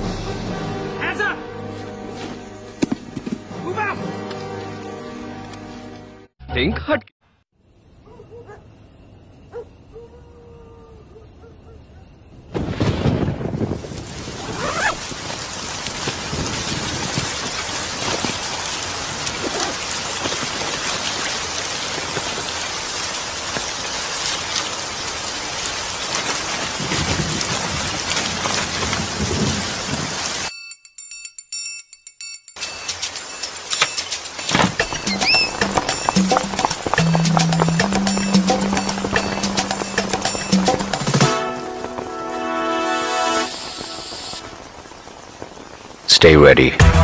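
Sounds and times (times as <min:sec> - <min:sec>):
low rumbles of thunder: 0:12.4 - 0:19.5, 0:26.4 - 0:30.2
thunderclap: 0:12.4 - 0:22.7, 0:25.9 - 0:30.4
heavy rain pouring: 0:12.6 - 0:30.5, 0:32.6 - 0:47.0.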